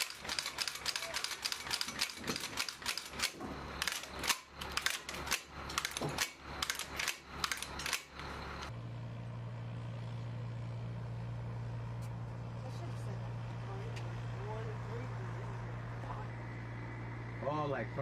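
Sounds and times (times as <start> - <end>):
metallic gun clicks and clacks: 0.0 - 8.2
steady low hum: 1.4 - 18.0.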